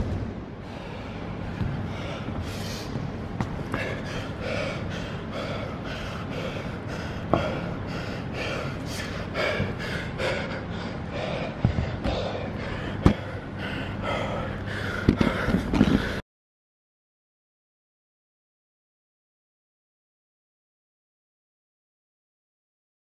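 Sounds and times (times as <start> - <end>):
man panting heavily: 0.6 - 3.0, 3.6 - 16.2.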